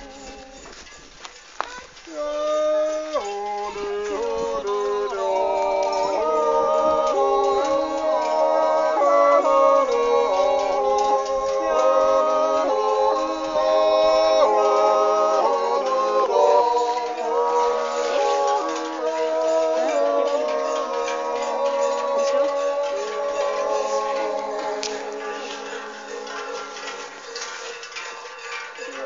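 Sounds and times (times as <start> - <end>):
group yodeling without words: 0.0 - 0.8, 2.1 - 27.2.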